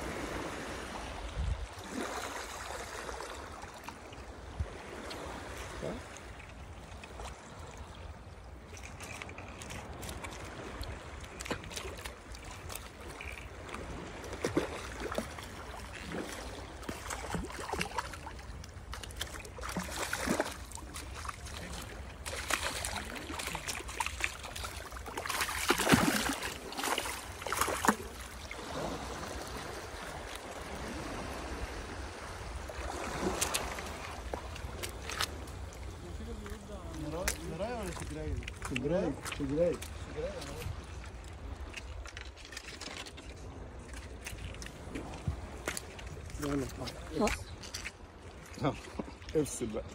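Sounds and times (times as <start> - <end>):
water lapping against rocks: 0.0 - 49.9
fish splashing: 8.7 - 30.2.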